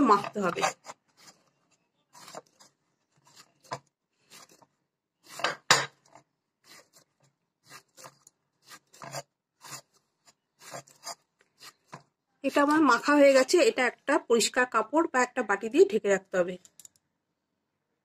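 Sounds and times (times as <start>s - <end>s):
hand kneading dough: 0.0s - 13.1s.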